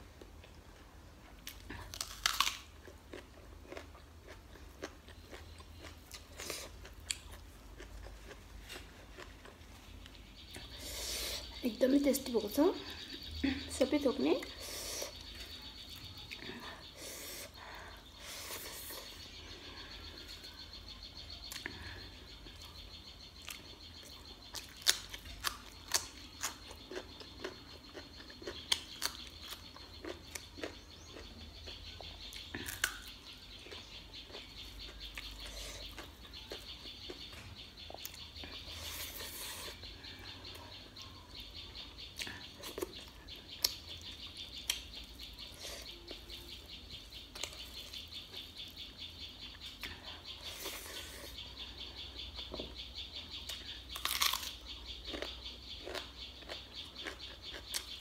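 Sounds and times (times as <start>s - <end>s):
chewing and mouth smacks: 1.4s - 10.7s, 53.5s - 58.0s.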